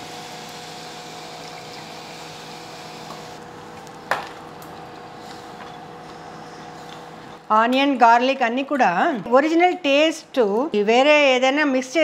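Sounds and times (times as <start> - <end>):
stove hiss: 0.0 - 3.4
stove low hum: 0.0 - 11.5.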